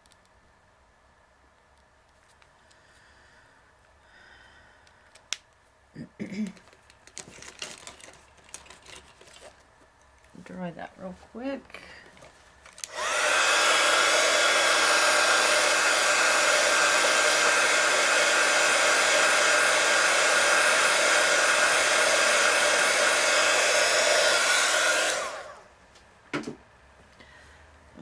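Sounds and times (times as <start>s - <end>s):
hot-air dryer motor whine: 12.8s - 25.7s
hot-air dryer rushing hiss: 12.8s - 25.7s.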